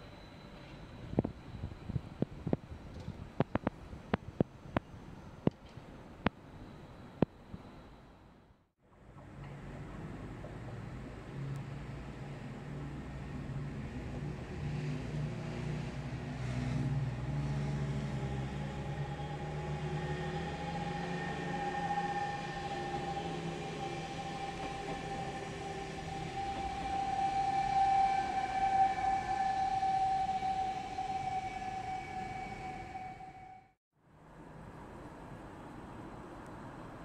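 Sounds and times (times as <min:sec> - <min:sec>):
electric train motor whine: 0:14.8 - 0:33.7.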